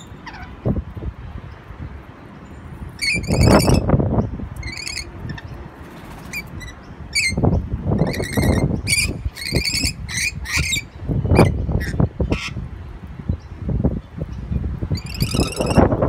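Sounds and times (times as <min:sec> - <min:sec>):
parrots screeching: 0:00.1 - 0:00.6, 0:03.0 - 0:03.9, 0:04.6 - 0:05.4, 0:06.3 - 0:07.4, 0:08.0 - 0:12.6, 0:14.9 - 0:15.8.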